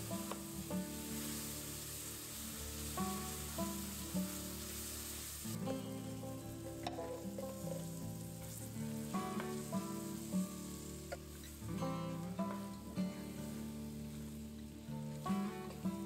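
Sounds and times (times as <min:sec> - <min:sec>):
rice and vegetables sizzling: 0:00.0 - 0:16.0
soft background music: 0:00.0 - 0:16.0
wooden spoon stirring: 0:06.8 - 0:11.6.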